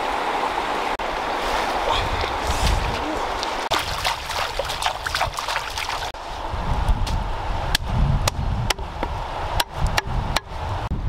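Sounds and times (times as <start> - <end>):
stream running: 0.0 - 6.5
hands splashing in water: 2.2 - 6.2.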